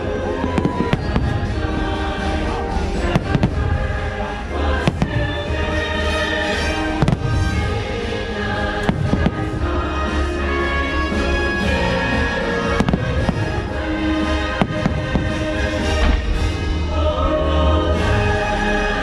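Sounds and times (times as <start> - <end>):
soundtrack music: 0.0 - 19.0
fireworks bangs: 0.3 - 4.1, 4.7 - 10.2, 11.2 - 16.7.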